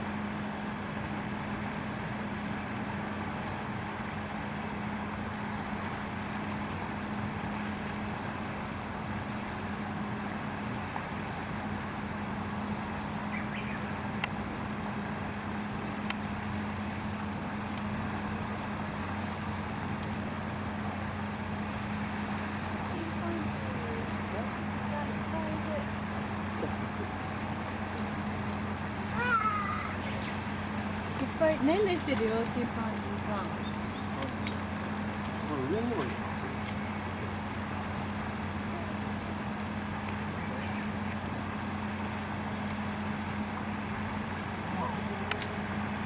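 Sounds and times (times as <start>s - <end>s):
low mechanical hum: 0.0s - 46.0s.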